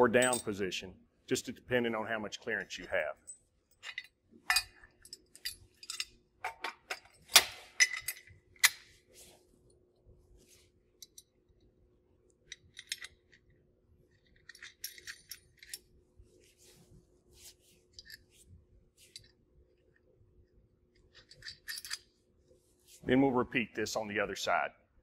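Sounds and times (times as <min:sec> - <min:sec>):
metal bolts clinking and rattling: 0:00.0 - 0:00.6, 0:03.2 - 0:09.0, 0:12.4 - 0:16.0, 0:17.9 - 0:18.4, 0:21.0 - 0:22.2.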